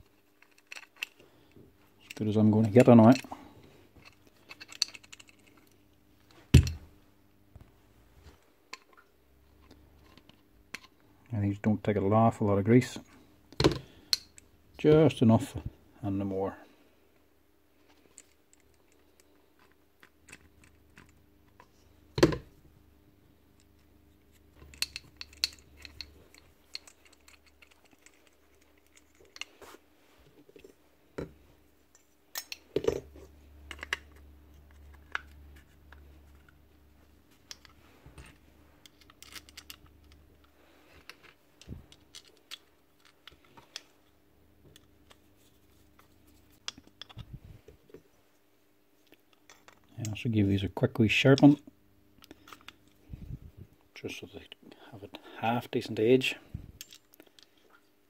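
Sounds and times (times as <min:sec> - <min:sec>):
clipper parts clicking and scraping: 0:00.0 - 0:01.2, 0:04.0 - 0:05.8, 0:24.6 - 0:29.6.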